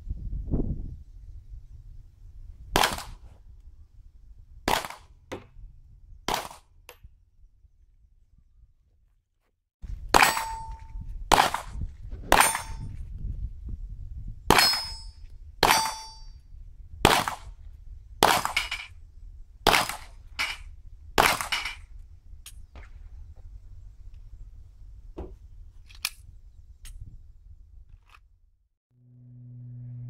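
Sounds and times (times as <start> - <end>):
pistol shots: 2.8 - 3.2, 4.7 - 5.1, 6.3 - 6.6, 17.1 - 17.5, 19.7 - 20.1, 21.2 - 21.7
bullets ringing on steel targets: 10.2 - 11.5, 12.3 - 12.9, 14.5 - 16.4.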